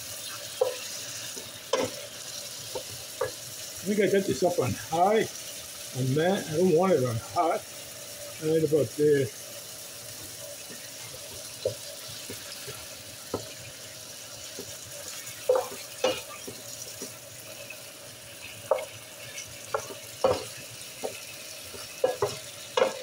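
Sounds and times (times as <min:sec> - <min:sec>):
chicken sizzling in a skillet: 0:00.0 - 0:23.0
wooden spoon scraping a pan: 0:10.1 - 0:23.0.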